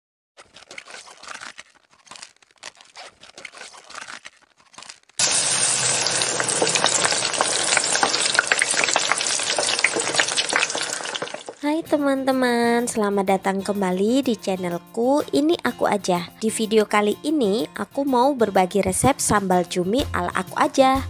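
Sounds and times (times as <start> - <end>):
food frying in hot oil: 5.2 - 11.6.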